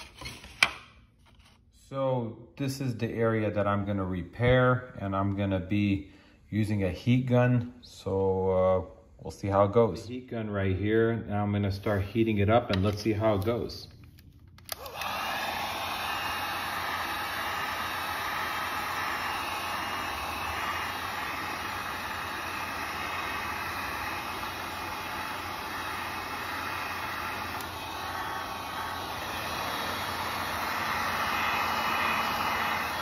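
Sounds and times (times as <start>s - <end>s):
heat gun fan blowing: 14.6s - 33.0s.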